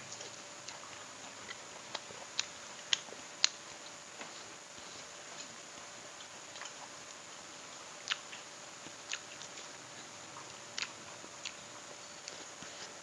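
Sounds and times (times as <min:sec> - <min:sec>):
person chewing: 0:08.0 - 0:09.8, 0:10.8 - 0:13.0.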